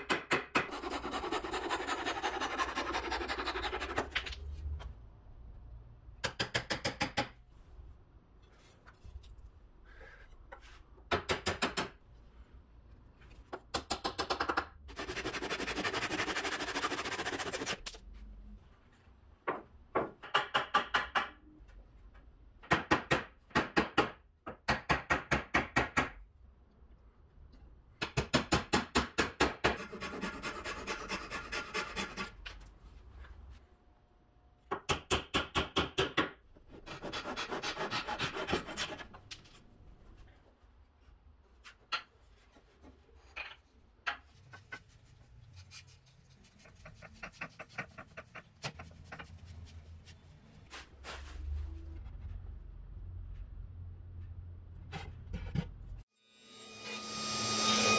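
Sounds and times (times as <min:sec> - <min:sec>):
hand saw cutting wood: 0:00.6 - 0:04.2, 0:14.9 - 0:17.9, 0:29.8 - 0:32.3, 0:36.8 - 0:39.1
hammer tapping wooden dowels: 0:06.2 - 0:07.4.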